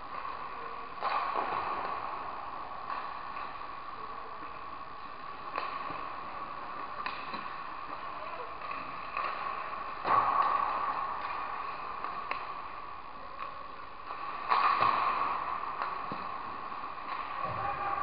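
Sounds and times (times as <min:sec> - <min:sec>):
sticks and pucks clicking: 0:04.5 - 0:07.9, 0:08.6 - 0:17.4.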